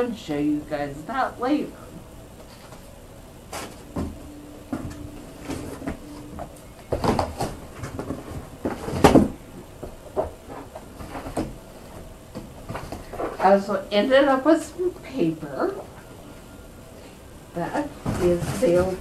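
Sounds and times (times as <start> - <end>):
rustling in cardboard box: 17.8 - 19.0.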